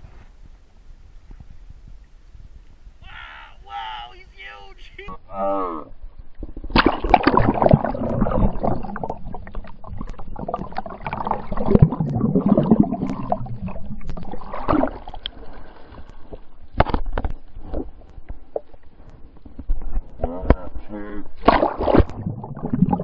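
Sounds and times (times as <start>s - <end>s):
muffled underwater sloshing: 5.9s - 23.0s.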